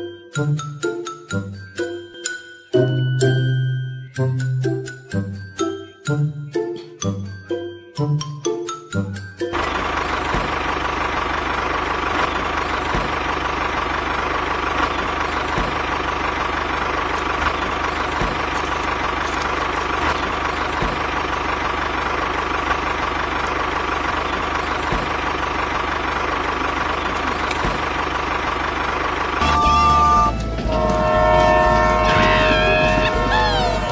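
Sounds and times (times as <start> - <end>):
engine idling: 9.5 - 33.9.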